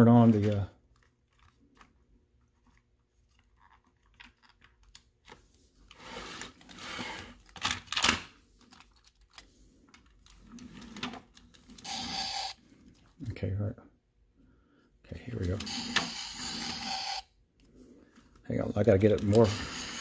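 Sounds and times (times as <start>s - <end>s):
sharp plastic scrapes: 19.0s - 20.0s.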